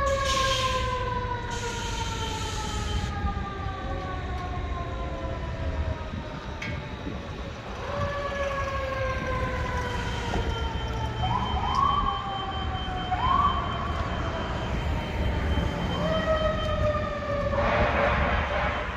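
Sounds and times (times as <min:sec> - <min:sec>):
fire engine siren wailing: 0:00.0 - 0:18.9.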